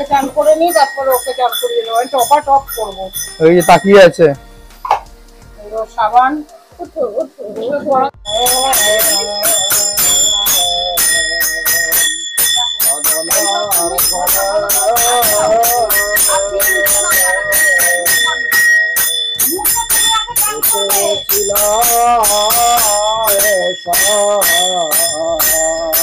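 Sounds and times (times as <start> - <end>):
ringing metallic beat: 0.0 - 7.3, 7.9 - 26.0
person singing: 8.0 - 26.0.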